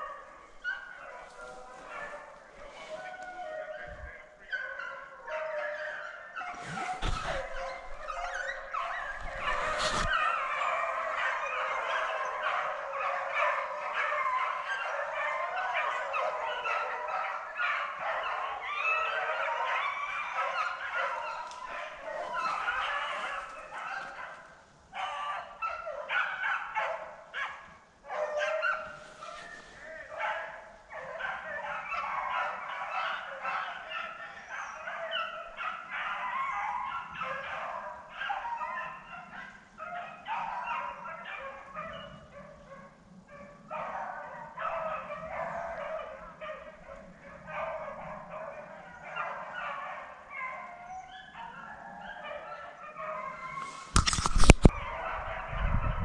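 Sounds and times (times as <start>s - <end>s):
beagles baying: 0.0s - 55.7s.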